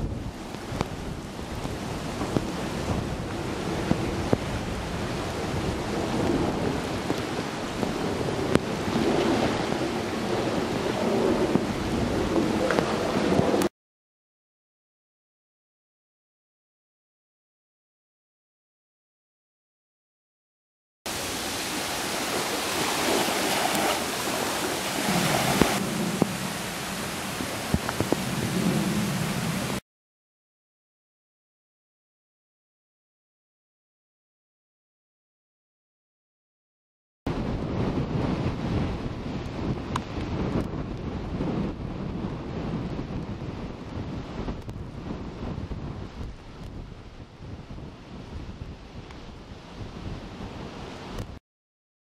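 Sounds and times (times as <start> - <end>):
choppy water: 0.0 - 13.7, 21.1 - 29.8, 37.3 - 51.4
rain falling: 0.0 - 13.7, 21.1 - 29.8
wind buffeting microphone: 0.0 - 13.7, 21.1 - 29.8, 37.3 - 51.4.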